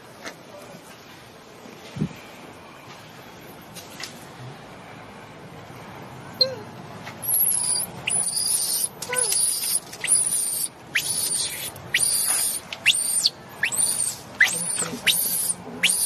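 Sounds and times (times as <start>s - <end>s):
infant monkey screaming: 7.3s - 16.0s.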